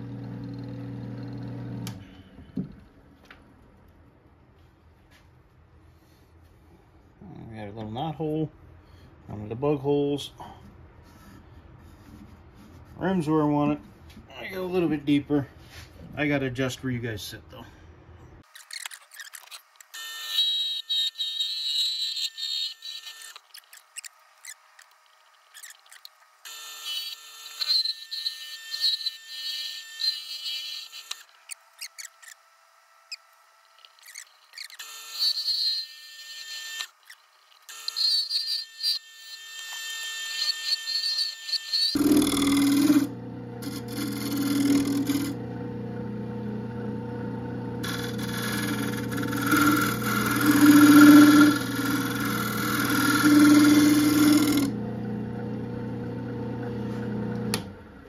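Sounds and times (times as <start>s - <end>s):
lathe tool scraping wood: 33.1s - 57.8s
lathe running: 40.4s - 58.0s.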